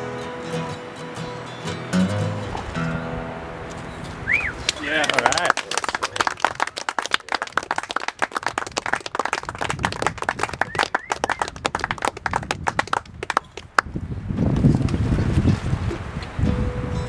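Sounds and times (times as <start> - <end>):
audience clapping: 4.4 - 13.9.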